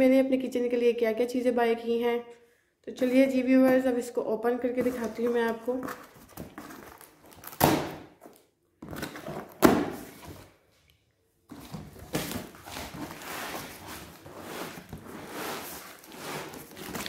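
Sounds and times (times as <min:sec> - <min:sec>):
cardboard rustling and scraping: 0:11.5 - 0:17.0.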